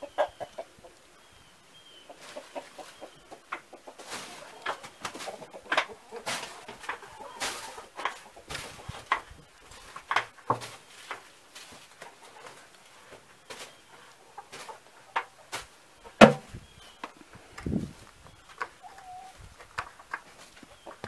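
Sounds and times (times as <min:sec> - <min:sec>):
plastic bucket knocks and scuffs: 0:16.2 - 0:16.5
heavy thump: 0:16.2 - 0:16.6.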